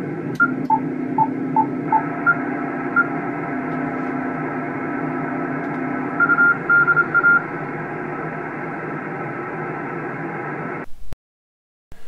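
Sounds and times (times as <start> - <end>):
morse-like beeps: 6.1 - 7.4.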